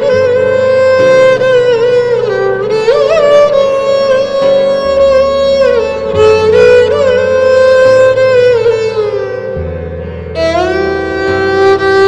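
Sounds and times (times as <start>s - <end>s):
sustained sliding melody: 0.0s - 12.0s.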